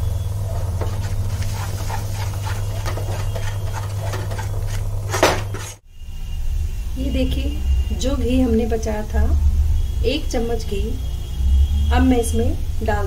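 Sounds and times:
metal spoon scraping a pan: 0.6 - 5.8.

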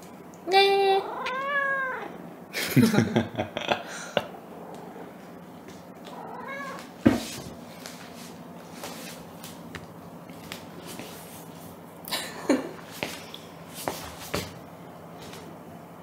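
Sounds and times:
cat meowing: 1.0 - 2.1, 6.1 - 6.9.

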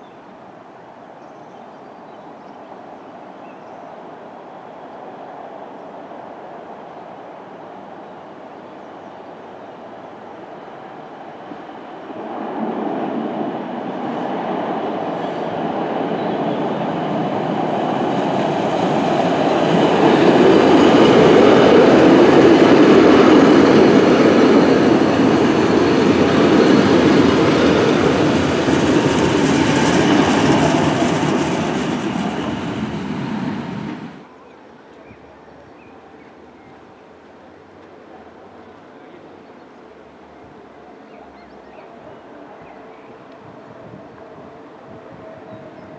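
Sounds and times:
train wheels on rails: 11.0 - 34.3
faint background noise: 34.2 - 45.9.

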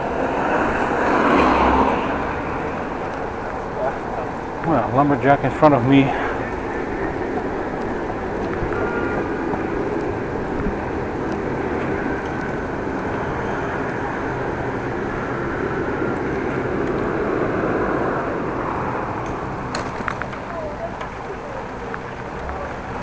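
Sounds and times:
wind rush: 0.0 - 20.3
bicycle tyre rumble: 0.0 - 23.0.

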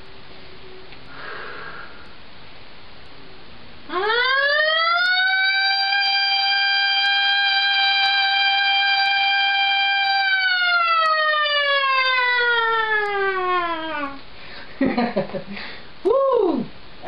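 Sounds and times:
man imitating a siren: 3.9 - 14.2.

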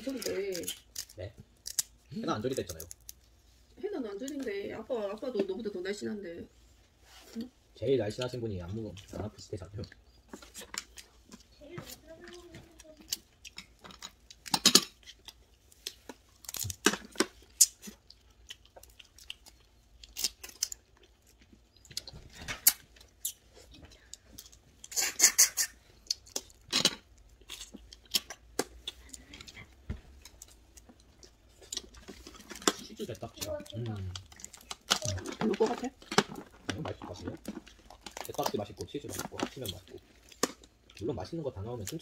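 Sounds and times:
crab shells cracking: 0.0 - 3.3, 12.8 - 29.4, 30.2 - 33.2, 33.8 - 41.0.

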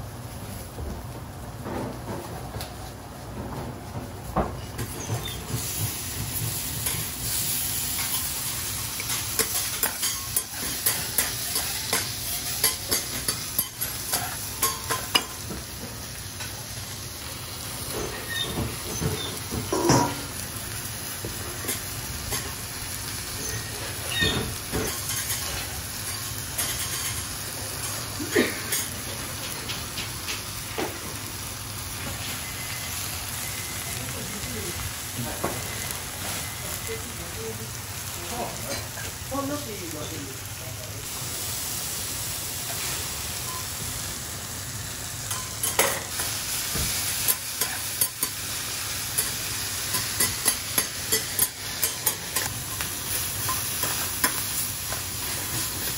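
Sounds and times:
food sizzling on a griddle: 0.0 - 55.9
metal spatulas scraping a griddle: 17.9 - 20.2, 23.3 - 27.3.

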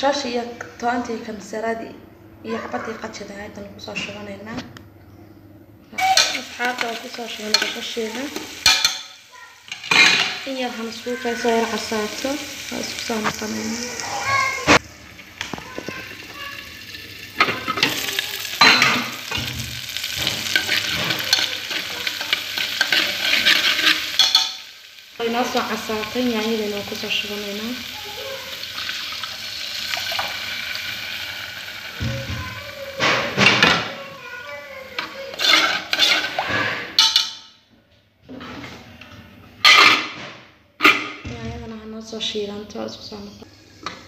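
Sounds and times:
spoon scraping a pot: 6.0 - 10.5, 18.6 - 24.6, 35.0 - 37.4
vegetables sizzling in a pot: 6.0 - 37.5, 40.8 - 44.0
metal lid clanking on pot: 39.6 - 40.2.

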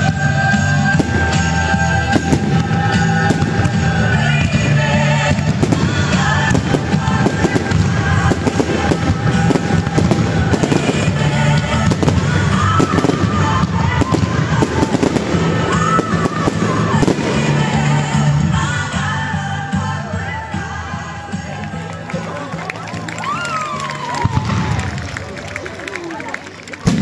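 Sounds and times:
fireworks bursting: 0.0 - 19.9
pop music with singer: 0.0 - 24.2.

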